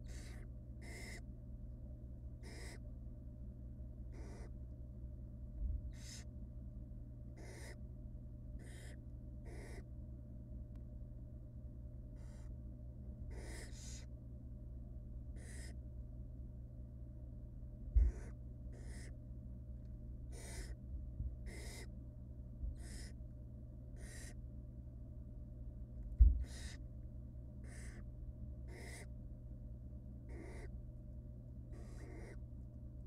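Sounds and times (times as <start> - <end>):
owl nestlings hissing calls: 0.0 - 1.2, 2.4 - 2.8, 4.1 - 4.5, 5.9 - 6.3, 7.4 - 7.8, 8.6 - 9.9, 12.2 - 12.5, 13.3 - 14.1, 15.4 - 15.8, 18.0 - 19.2, 20.3 - 20.8, 21.5 - 21.9, 22.8 - 23.2, 24.0 - 24.4, 26.4 - 26.8, 27.6 - 28.0, 28.7 - 29.1, 30.3 - 30.7, 31.7 - 32.4.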